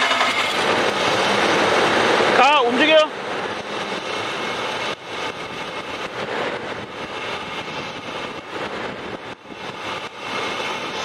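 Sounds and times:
engine cranking and running: 0.0 - 2.3.

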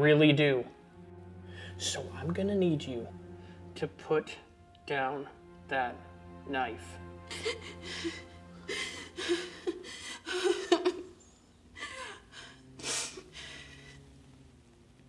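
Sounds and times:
low music drone: 0.0 - 15.0
woman crying and sobbing: 7.1 - 13.9.

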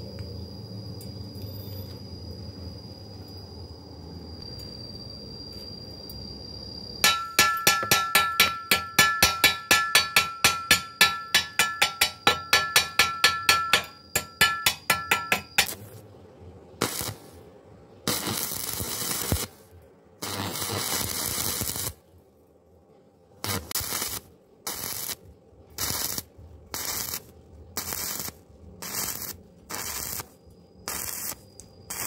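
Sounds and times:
hammer tapping on metal tube: 7.0 - 15.8
hissing noise bursts: 16.8 - 22.0, 25.8 - 32.0.

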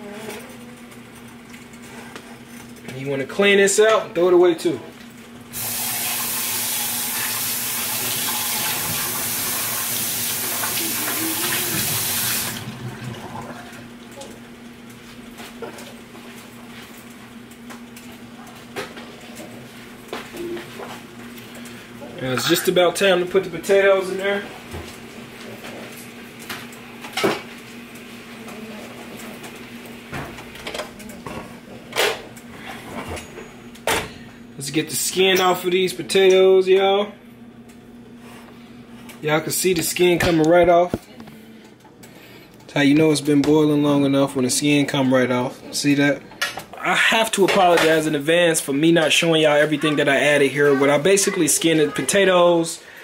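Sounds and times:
faucet running into sink: 5.6 - 13.4.

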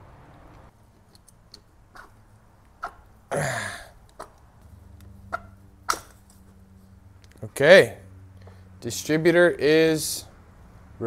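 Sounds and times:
person coughing: 3.3 - 4.0.

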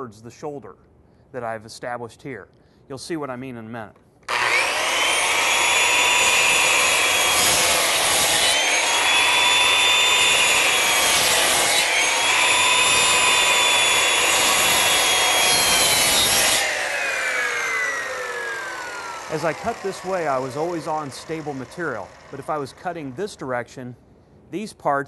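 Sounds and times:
circular saw cutting wood: 4.3 - 23.6
saw blade spinning down: 4.3 - 23.6.

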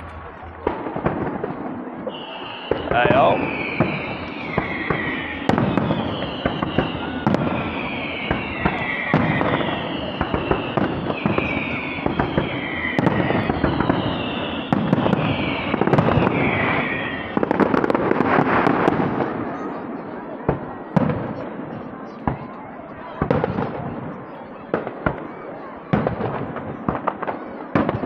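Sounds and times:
whistling firework shells: 0.0 - 19.5
dense firework crackling: 0.0 - 28.0
firework bangs: 0.0 - 28.0.

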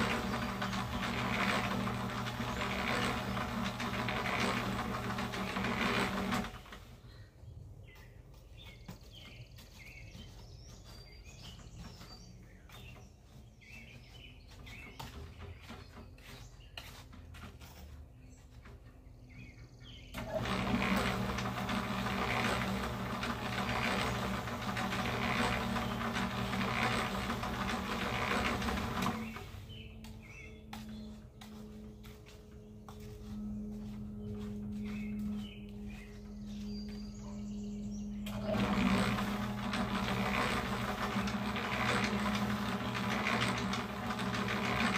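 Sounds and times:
mix rushing in mixer drum: 0.0 - 6.7, 20.2 - 29.6, 38.3 - 44.9
electric cement mixer humming: 0.0 - 7.2, 20.1 - 44.9
birds chirping: 6.5 - 44.9.

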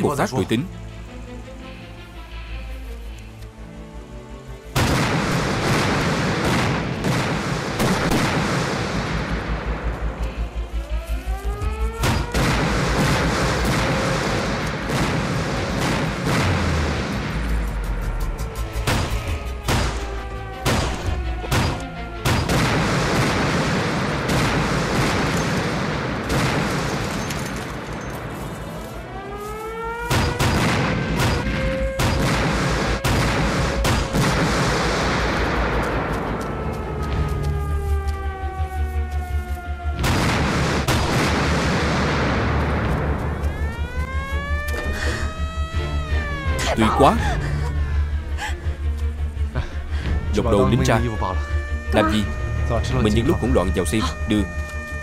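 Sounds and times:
dramatic music: 0.0 - 55.0
artillery explosions: 4.8 - 9.8, 12.0 - 17.5, 20.6 - 28.3, 30.1 - 36.1, 40.0 - 43.2.

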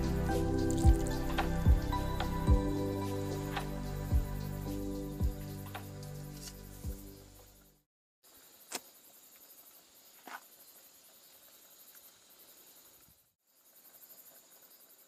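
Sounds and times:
intro music: 0.0 - 7.6
insects chirping: 0.0 - 15.0.

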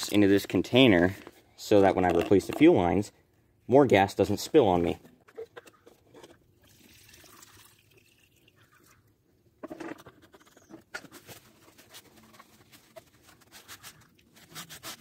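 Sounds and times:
fuel pouring into container: 6.5 - 9.1.

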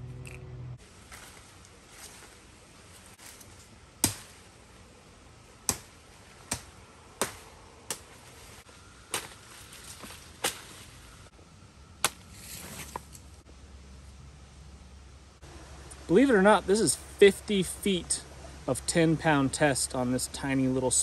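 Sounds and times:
blade chopping green wood: 5.6 - 8.1.

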